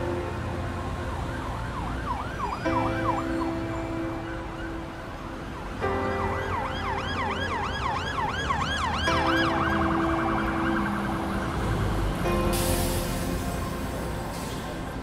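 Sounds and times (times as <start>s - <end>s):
emergency siren yelping: 0.2s - 12.0s.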